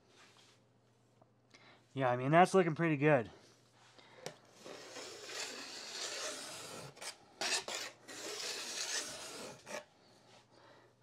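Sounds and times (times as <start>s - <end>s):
file strokes on steel edge: 4.6s - 9.9s.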